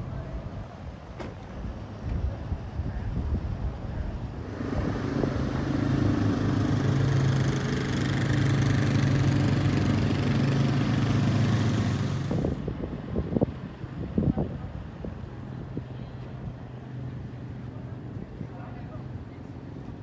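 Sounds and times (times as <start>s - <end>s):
vehicle engine running: 4.4s - 12.7s.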